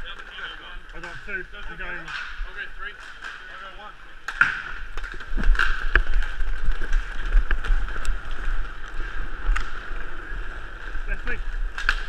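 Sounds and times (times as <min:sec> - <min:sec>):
inline skates rumbling on court: 0:00.0 - 0:12.0
wind buffeting camera: 0:04.8 - 0:12.0.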